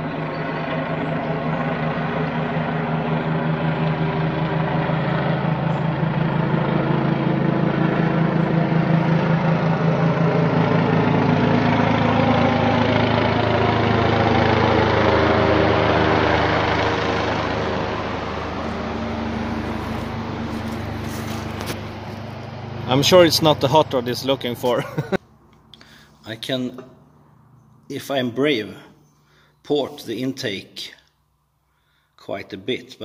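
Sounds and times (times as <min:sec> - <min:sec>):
helicopter rotor beating: 0:00.0 - 0:25.7
helicopter engine drone: 0:00.0 - 0:28.3.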